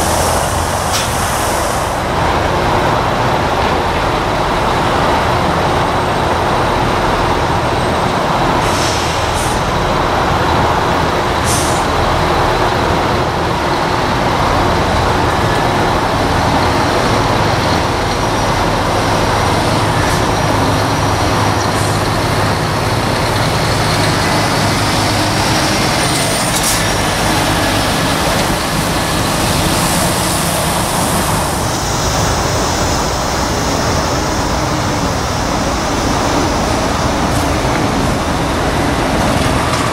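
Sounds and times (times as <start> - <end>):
air brake hisses: 0.0 - 2.0, 8.6 - 9.7, 11.5 - 11.9
diesel lorry engines rumbling: 0.0 - 39.9.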